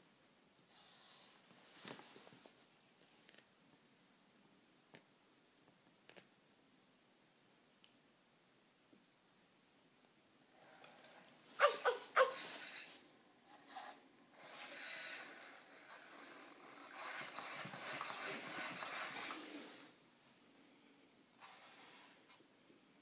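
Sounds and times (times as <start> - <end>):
robot dog yelps: 11.6 - 12.6
hissing breath-like noise: 13.8 - 17.4, 21.4 - 22.3.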